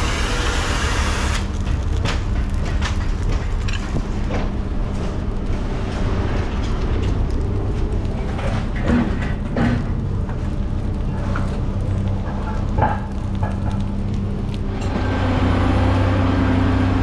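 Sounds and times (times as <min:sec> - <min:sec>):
loud hiss: 0:00.0 - 0:01.6
heavy machinery engine humming: 0:00.0 - 0:17.0.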